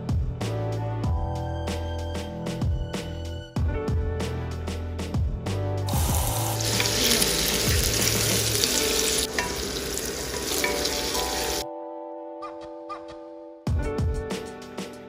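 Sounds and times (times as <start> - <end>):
background music: 0.0 - 15.0
food sizzling in a pan: 5.9 - 11.6.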